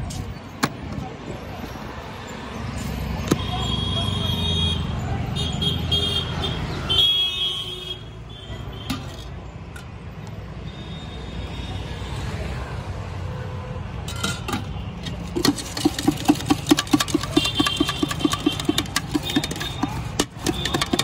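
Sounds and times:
street traffic hum: 0.0s - 21.0s
spoon knocking on steel tin: 15.4s - 21.0s.

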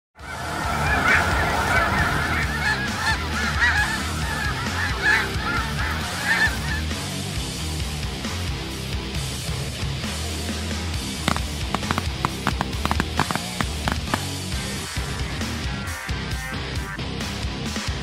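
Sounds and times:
geese honking: 0.2s - 7.3s, 11.2s - 14.7s.

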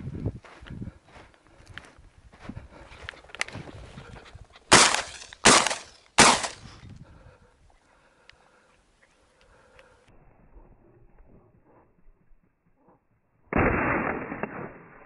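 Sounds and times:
shotgun shots: 4.7s - 6.7s, 13.5s - 15.0s.

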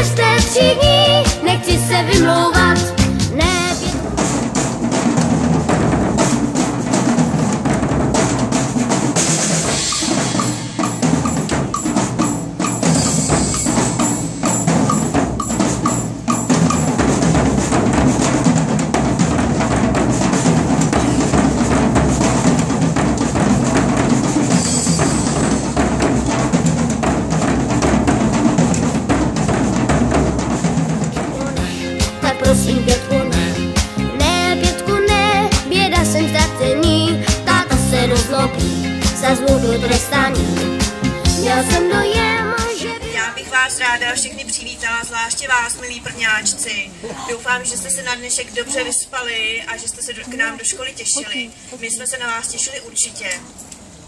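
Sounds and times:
cymbals: 0.0s - 35.8s
bass drums: 0.0s - 43.2s
marching snare drums: 0.0s - 43.2s.

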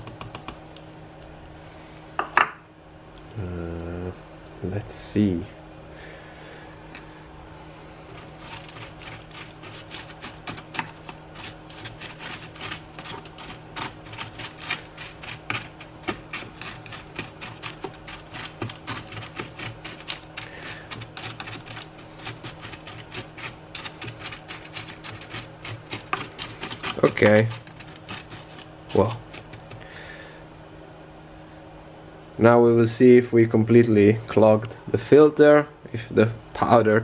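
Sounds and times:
carbon pellets rattling on plastic: 8.2s - 29.8s.

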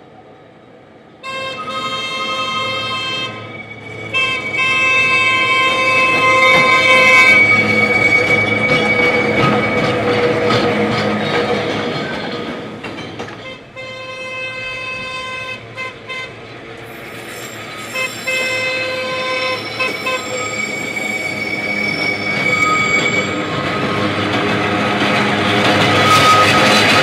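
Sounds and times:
locomotive horn blasts: 1.2s - 7.7s, 13.4s - 16.4s, 17.9s - 20.4s
wheels squealing on curved track: 2.5s - 10.6s, 16.8s - 24.2s, 25.5s - 27.0s.

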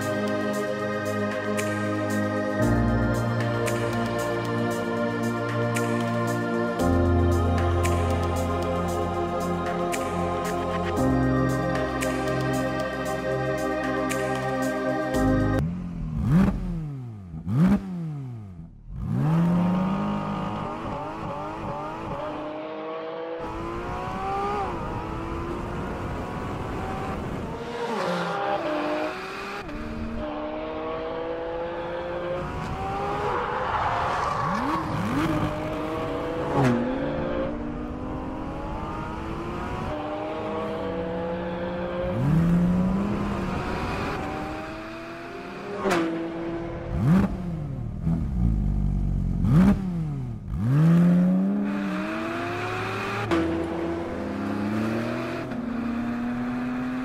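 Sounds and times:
car engine accelerating hard: 15.6s - 57.0s.

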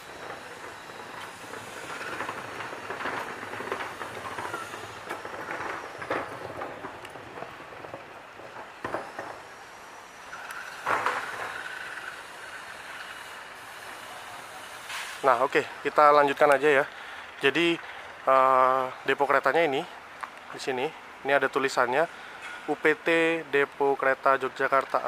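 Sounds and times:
high wheel squeal: 0.0s - 6.9s, 8.9s - 16.9s
locomotive rumble: 0.0s - 25.0s
wheels clanking on rails: 0.0s - 25.0s.

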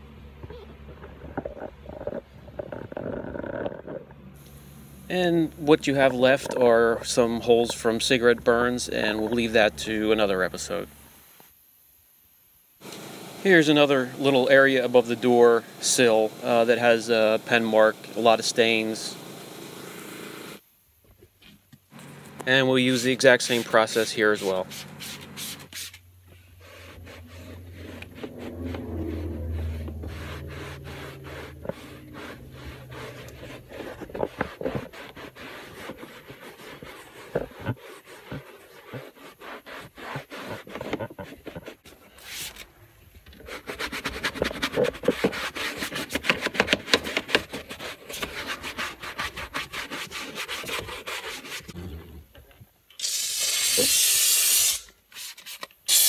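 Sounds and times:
loud steady hiss: 4.4s - 21.1s, 21.8s - 27.0s, 52.9s - 55.1s
towel rubbing on cloth: 22.9s - 42.6s, 43.4s - 51.8s.

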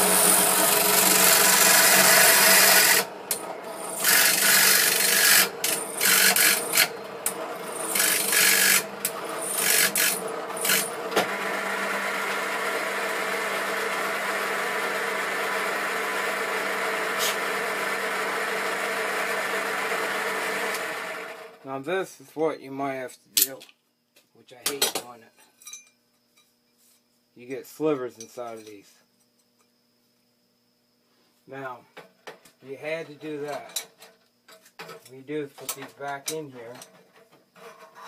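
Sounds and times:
drill bit cutting workpiece: 0.0s - 21.4s
drill press running: 0.0s - 21.6s.

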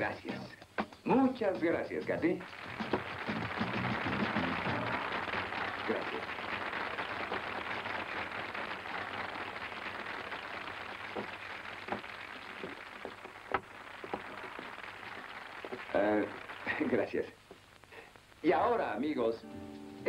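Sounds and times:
audience applauding: 2.4s - 17.3s.

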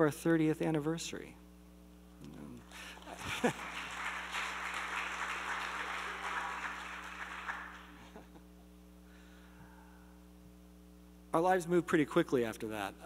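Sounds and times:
audience applauding: 2.7s - 8.3s.

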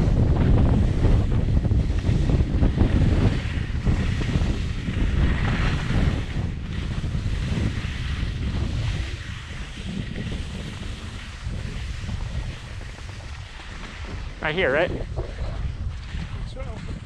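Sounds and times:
wind buffeting microphone: 0.0s - 17.0s.

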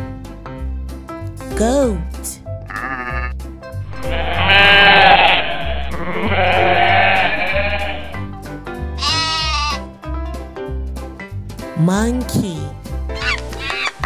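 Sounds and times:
background music with steady beat: 0.0s - 14.0s
goats bleating: 2.7s - 8.4s, 9.0s - 9.9s.

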